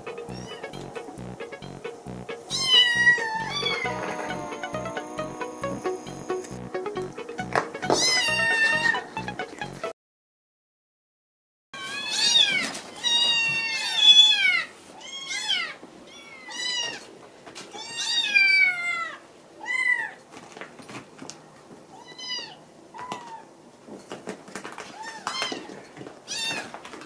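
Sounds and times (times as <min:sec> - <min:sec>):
kittens meowing: 0:02.5 - 0:05.5, 0:08.0 - 0:09.0.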